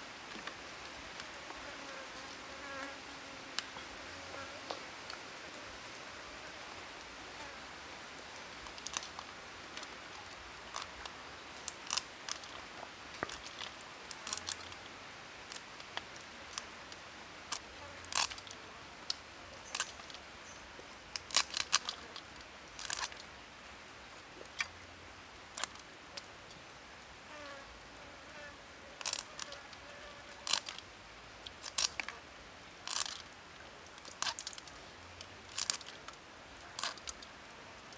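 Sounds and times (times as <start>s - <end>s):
faint steady hiss: 0.0s - 37.9s
herb sprigs snapping by hand: 10.7s - 12.5s, 13.2s - 14.8s, 30.4s - 30.8s, 31.5s - 32.2s, 32.8s - 33.2s, 35.5s - 36.1s, 36.8s - 37.3s.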